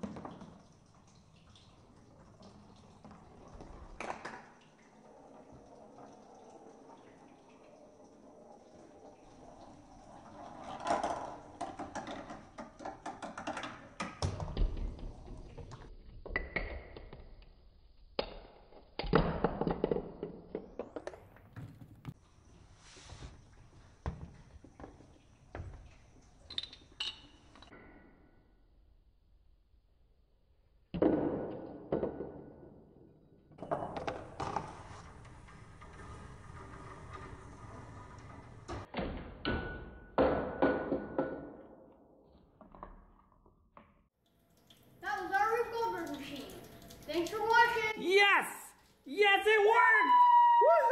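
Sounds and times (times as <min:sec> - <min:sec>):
ball rolling down cardboard ramp: 0:08.2 - 0:17.3, 0:19.0 - 0:22.2, 0:33.6 - 0:39.2.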